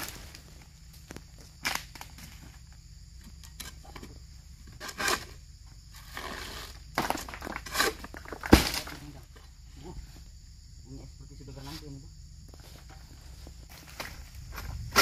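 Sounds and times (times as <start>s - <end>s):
rustling of palm fronds: 0.0s - 2.8s.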